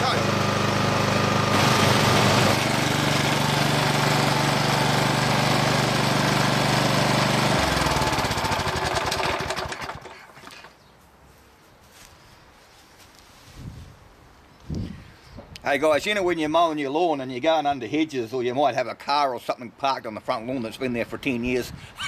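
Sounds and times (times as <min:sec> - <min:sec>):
lawn mower engine running: 0:00.0 - 0:10.7.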